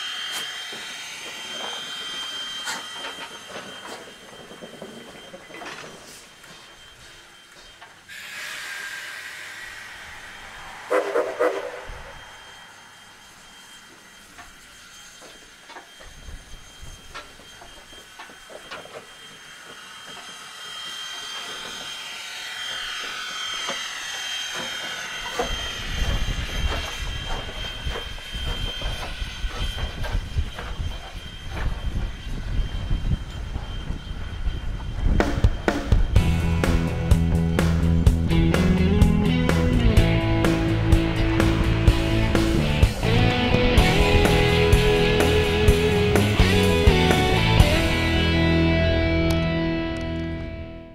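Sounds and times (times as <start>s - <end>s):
steam hissing: 0.0s - 48.8s
locomotive exhaust beats: 24.9s - 50.9s.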